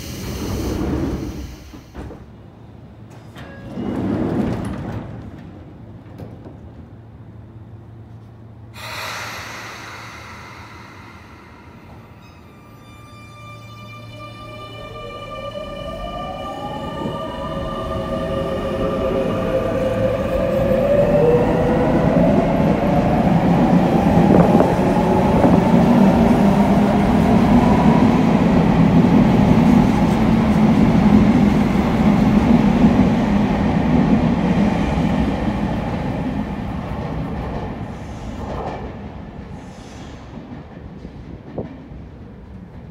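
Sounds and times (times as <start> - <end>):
train running noise: 0.0 - 13.7
train inverter whine: 7.3 - 33.5.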